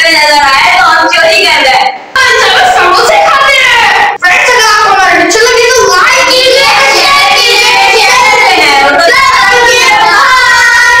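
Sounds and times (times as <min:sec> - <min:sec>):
child singing: 0:04.4 - 0:11.0.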